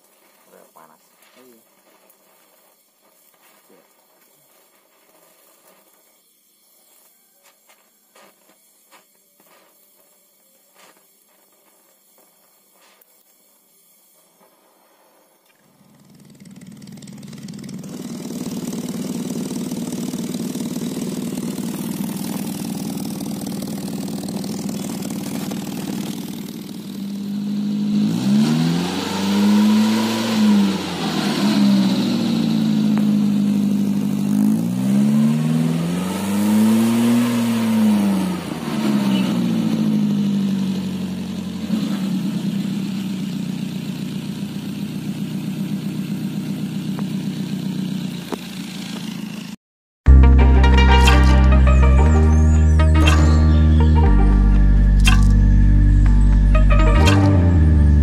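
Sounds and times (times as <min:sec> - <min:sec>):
van engine idling and revving: 0:15.7 - 0:49.6, 0:53.2 - 0:58.0.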